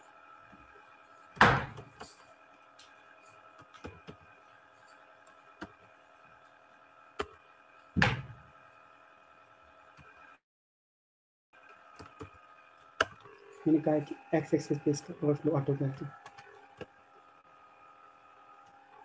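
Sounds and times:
steady electrical hum: 0:00.0 - 0:09.9, 0:12.0 - 0:19.0
heavier thumps: 0:08.0 - 0:08.4.

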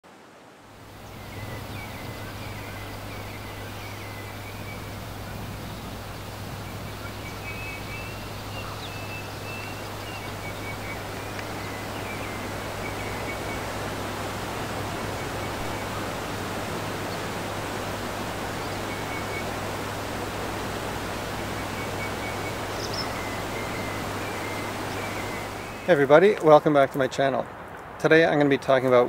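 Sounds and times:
waterfall and stream rushing: 0:00.0 - 0:29.0
birds chirping: 0:00.7 - 0:29.0.

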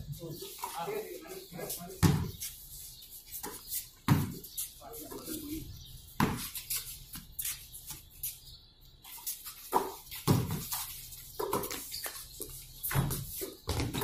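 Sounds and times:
basketball bouncing on concrete: 0:02.0 - 0:02.4, 0:03.5 - 0:04.4, 0:06.2 - 0:06.6, 0:09.7 - 0:12.2, 0:12.8 - 0:14.0.

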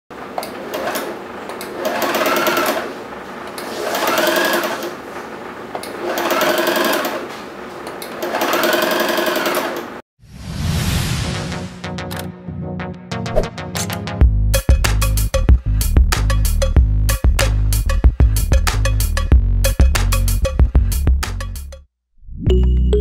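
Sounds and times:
sewing machine running: 0:00.4 - 0:05.2, 0:05.9 - 0:10.0
electronic intro sound: 0:10.2 - 0:12.3.

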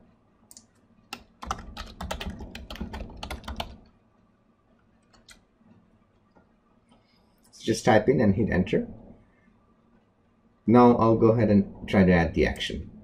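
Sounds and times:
keyboard typing: 0:00.5 - 0:04.0, 0:05.0 - 0:05.5.

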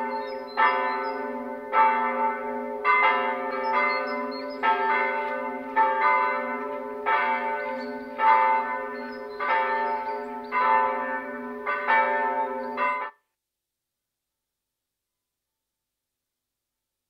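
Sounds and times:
church bells ringing: 0:00.0 - 0:13.2.

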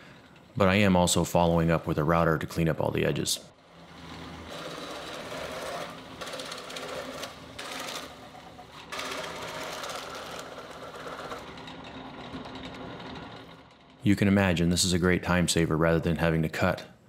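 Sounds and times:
motor hum: 0:03.5 - 0:14.0
drill press boring through wood: 0:03.6 - 0:14.0.

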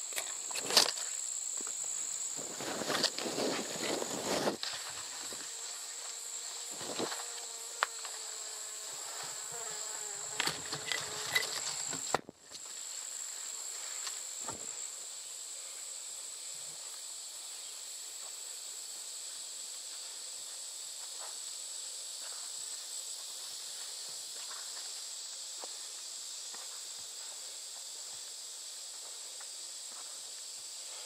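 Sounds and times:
insects droning: 0:00.0 - 0:31.0.

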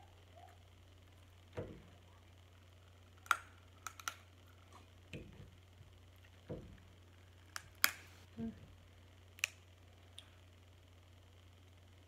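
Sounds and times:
crab shells cracking: 0:03.1 - 0:05.5, 0:07.4 - 0:08.2, 0:09.3 - 0:10.3.

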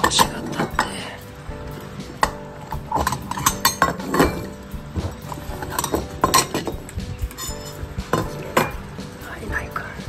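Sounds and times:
metal food bowls clinking: 0:00.0 - 0:01.0, 0:02.2 - 0:08.9
background music: 0:00.0 - 0:10.0.

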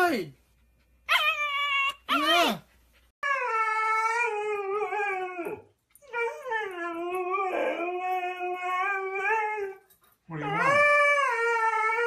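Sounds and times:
dog howling: 0:03.2 - 0:12.0.

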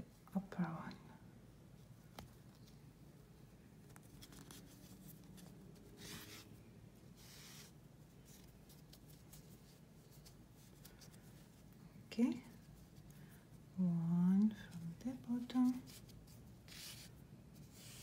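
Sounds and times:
yarn rubbing and rustling: 0:03.6 - 0:18.0.

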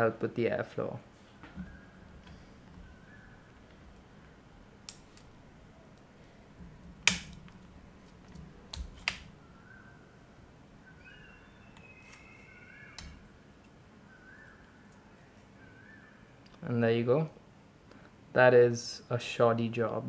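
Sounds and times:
heatsink clicking loose: 0:07.0 - 0:07.4.

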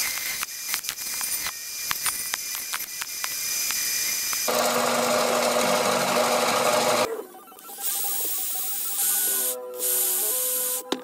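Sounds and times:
band saw cutting plastic: 0:00.0 - 0:07.1
high-pitched whir: 0:00.0 - 0:10.9.

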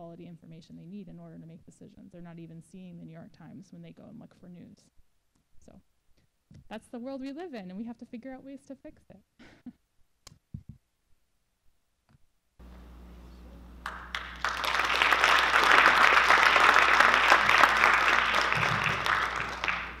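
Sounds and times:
low steady hum: 0:12.6 - 0:20.0
audience applauding: 0:13.8 - 0:20.0.

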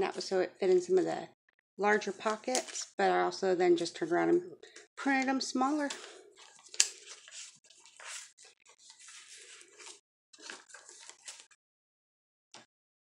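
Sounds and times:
paper pages rustling: 0:05.8 - 0:11.6.

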